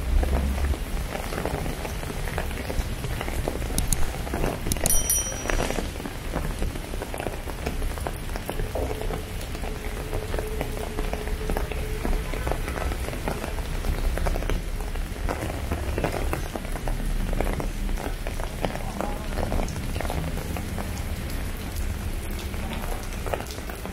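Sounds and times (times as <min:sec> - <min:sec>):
rain on pavement: 0:00.0 - 0:23.9.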